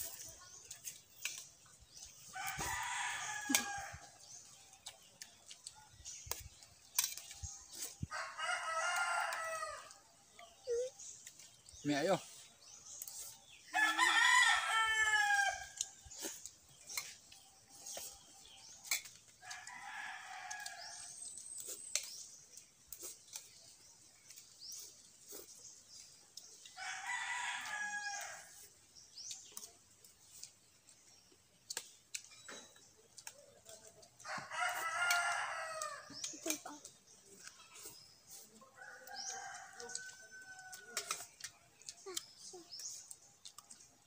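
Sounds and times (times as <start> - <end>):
rooster crowing: 13.8 - 15.6.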